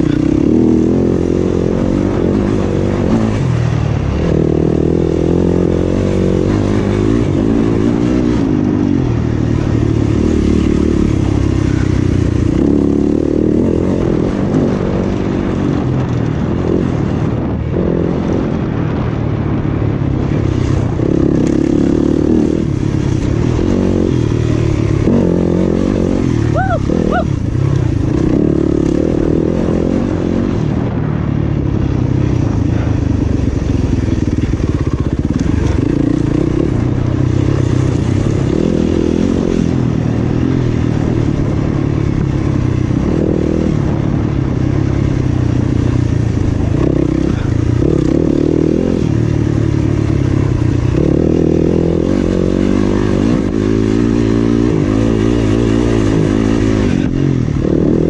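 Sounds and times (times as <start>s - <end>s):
dirt bike engine revving: 0.0s - 19.1s, 20.2s - 31.1s, 31.8s - 58.0s.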